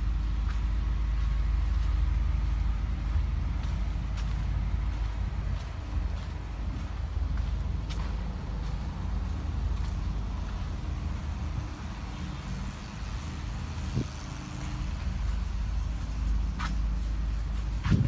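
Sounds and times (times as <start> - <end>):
low mechanical rumble: 0.0 - 18.0.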